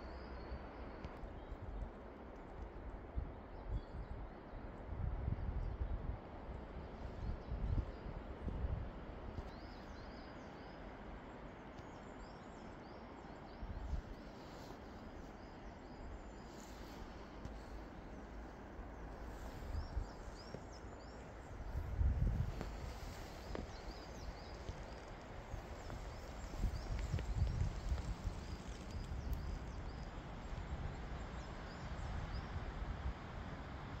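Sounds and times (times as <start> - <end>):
small birds chirping: 11.8 - 33.1
steady soft hiss: 13.8 - 34.0.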